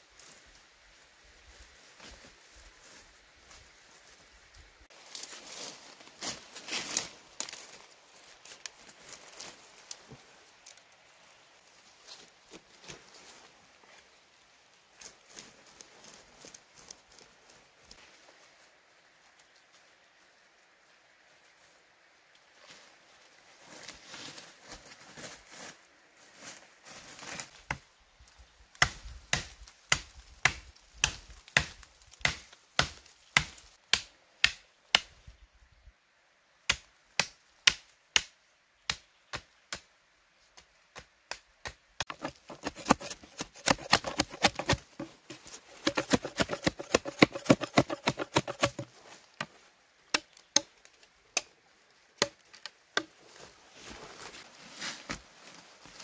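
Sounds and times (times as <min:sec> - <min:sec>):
blade chopping into wood: 0:41.6 - 0:48.9.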